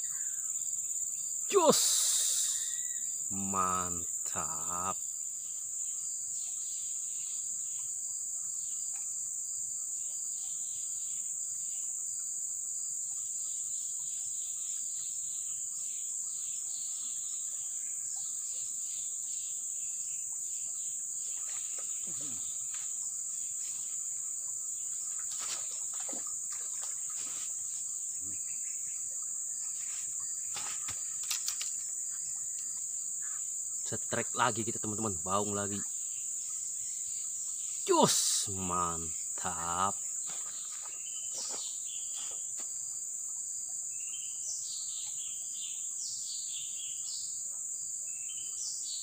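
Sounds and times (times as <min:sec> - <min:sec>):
high-pitched insect chorus: 0:00.0 - 0:49.0
rustles: 0:21.4 - 0:28.0, 0:29.7 - 0:32.8.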